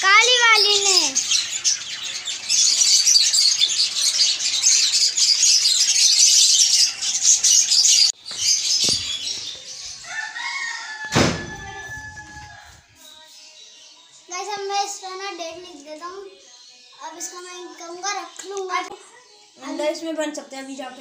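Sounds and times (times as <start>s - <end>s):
cage birds chirping: 0.0s - 21.0s
sharp thump: 11.1s - 11.7s.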